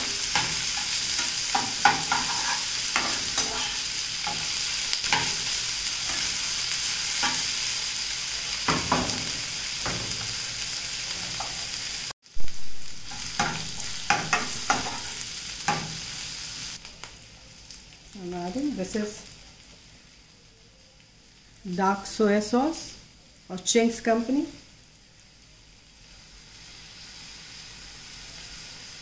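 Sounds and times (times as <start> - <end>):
vegetables sizzling in oil: 0.0 - 29.0
spatula scraping and tapping pan: 0.2 - 5.5, 13.1 - 16.0.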